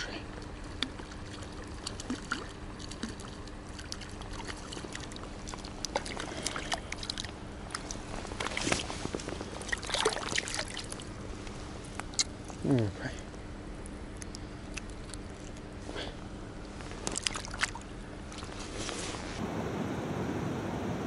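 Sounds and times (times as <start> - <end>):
fish splashing in water: 0.8 - 11.2, 17.0 - 18.5.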